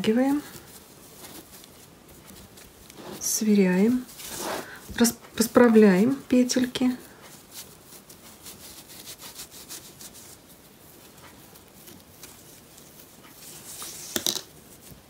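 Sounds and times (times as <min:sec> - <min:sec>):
hands rustling jute bag handle: 0:00.0 - 0:15.0.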